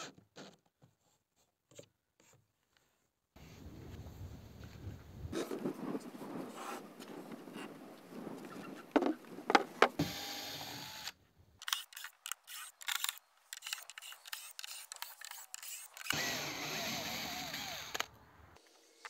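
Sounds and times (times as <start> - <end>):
cordless drill driving screws: 10.0 - 18.1.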